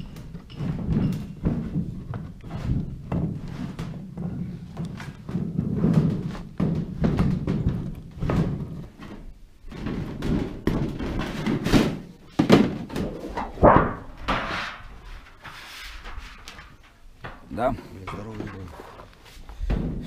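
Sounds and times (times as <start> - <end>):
metal sheet wobbling: 12.8 - 15.3.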